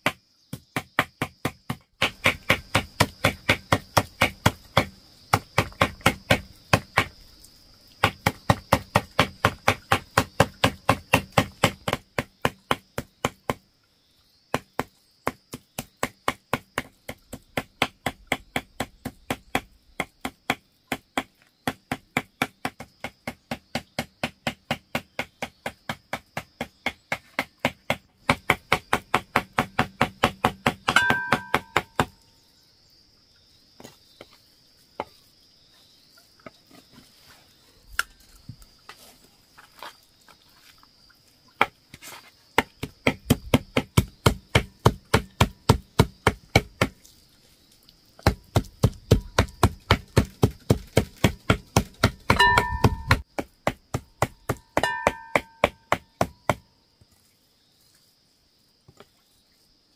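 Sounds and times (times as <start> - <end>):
cleaver chopping meat on wood: 0.0 - 7.2, 8.0 - 13.6, 14.5 - 32.2, 42.6 - 47.0, 48.2 - 56.7
scattered knocks: 27.6 - 32.1, 48.2 - 56.6.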